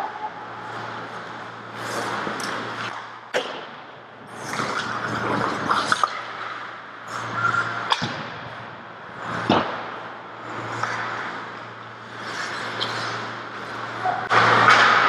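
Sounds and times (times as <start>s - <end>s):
skates scraping ice: 0.0s - 3.6s, 4.3s - 8.2s, 9.1s - 15.0s
low hum in rink: 0.0s - 15.0s
steady rushing noise: 0.0s - 15.0s
hockey sticks clacking: 10.6s - 11.5s, 12.1s - 15.0s.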